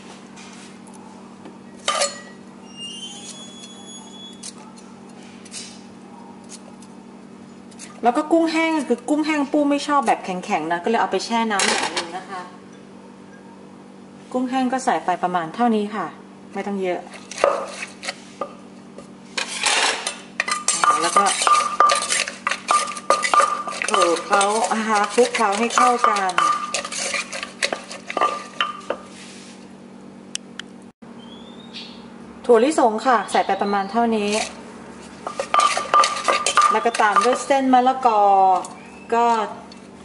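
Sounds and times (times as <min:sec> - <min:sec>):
pestle scraping: 0:17.0 - 0:29.6, 0:34.2 - 0:39.4
pestle knocking in clay mortar: 0:20.4 - 0:29.1, 0:35.2 - 0:37.5.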